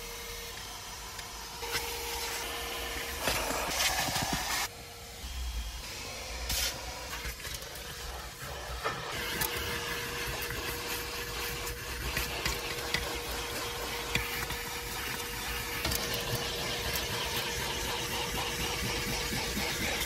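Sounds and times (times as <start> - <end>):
vacuum cleaner whine: 0.0 - 20.0
nozzle rubbing over carpet: 6.5 - 20.0.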